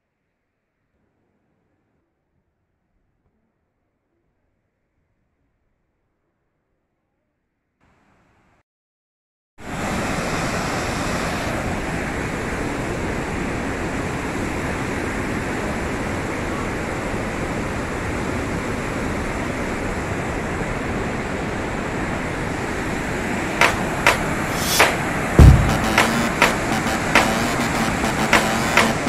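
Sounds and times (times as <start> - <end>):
sharp knocks: 23.6 - 27.5.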